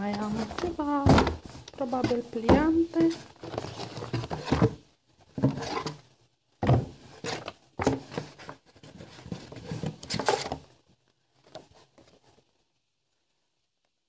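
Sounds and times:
glossy paper rustling: 0:00.0 - 0:04.5
soft knocks in cardboard box: 0:00.3 - 0:03.2.

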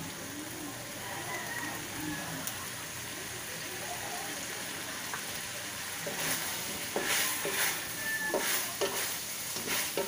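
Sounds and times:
food sizzling in wok: 0:00.0 - 0:10.0
wooden spatula scraping wok: 0:06.0 - 0:10.0.

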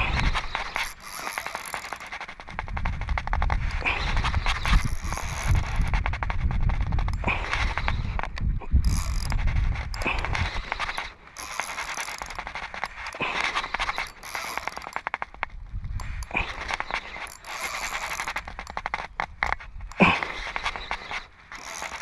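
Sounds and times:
wind buffeting microphone: 0:00.0 - 0:00.9, 0:02.4 - 0:11.1, 0:15.3 - 0:17.3
spinning reel clicking: 0:00.0 - 0:15.4, 0:16.0 - 0:22.0.

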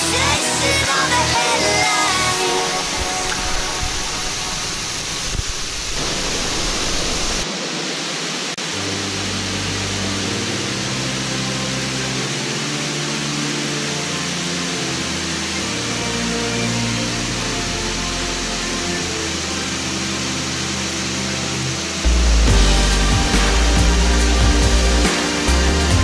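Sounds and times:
water rushing over a weir: 0:00.0 - 0:26.0
soft music with held notes: 0:08.6 - 0:26.0.

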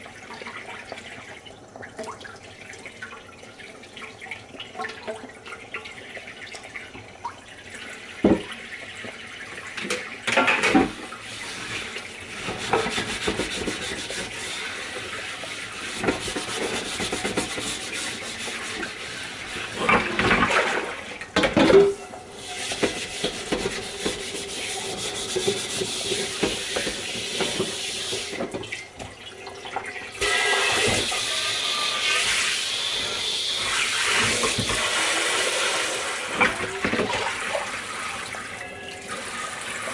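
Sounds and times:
faucet running into sink: 0:00.0 - 0:39.9
dishes knocking and clattering: 0:08.2 - 0:08.5, 0:09.8 - 0:11.0, 0:12.5 - 0:14.4, 0:21.4 - 0:27.8, 0:36.4 - 0:37.3.

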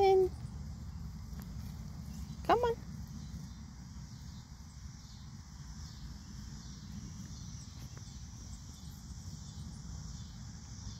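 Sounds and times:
low steady rumble: 0:00.0 - 0:10.9.

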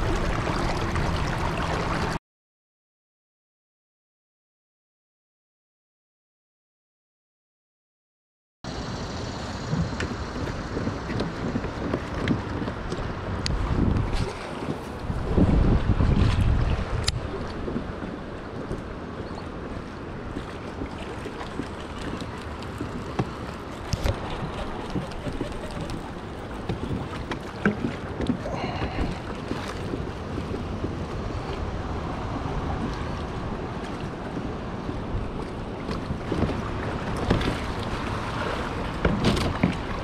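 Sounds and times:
river water rushing: 0:00.0 - 0:02.2, 0:08.7 - 0:40.0
wind on microphone: 0:09.6 - 0:40.0.

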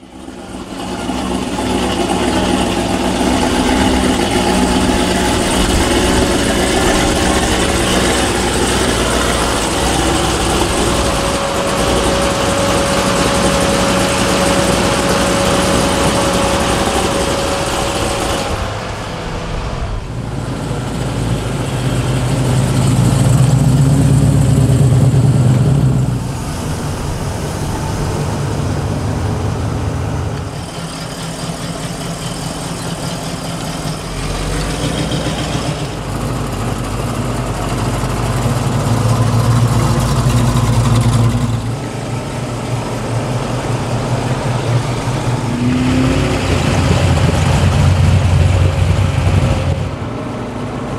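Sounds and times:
thin steady whine: 0:00.0 - 0:23.9
car engines idling: 0:00.0 - 0:50.9.

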